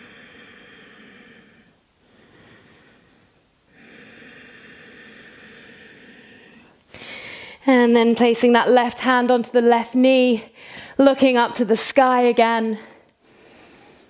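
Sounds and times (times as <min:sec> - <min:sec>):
woman breathing slowly: 0:00.0 - 0:07.7, 0:10.5 - 0:11.0, 0:12.8 - 0:14.0.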